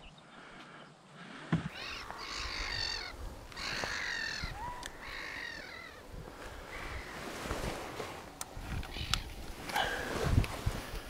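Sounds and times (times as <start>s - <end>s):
bird calling: 0.0s - 7.5s, 8.3s - 10.1s.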